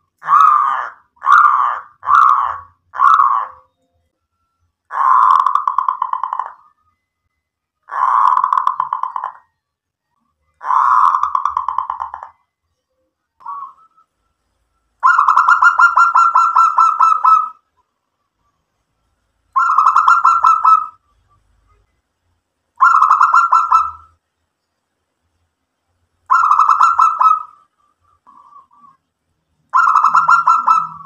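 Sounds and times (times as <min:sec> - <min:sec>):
dove cooing: 0:00.2 - 0:03.6, 0:04.9 - 0:06.7, 0:07.9 - 0:09.4, 0:10.6 - 0:12.3, 0:13.4 - 0:13.9, 0:15.0 - 0:17.6, 0:19.6 - 0:21.0, 0:22.8 - 0:24.1, 0:26.3 - 0:29.0, 0:29.7 - 0:31.0.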